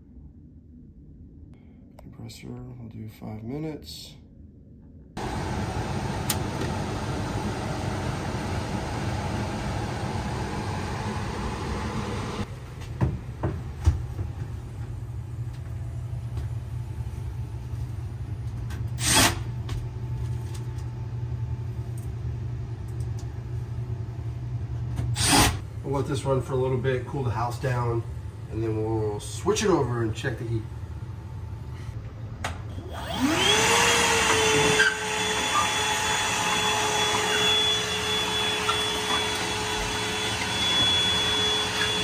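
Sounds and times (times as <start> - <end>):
low hum: 0.0 - 33.6
blower airy rush: 5.2 - 12.6, 32.8 - 42.0.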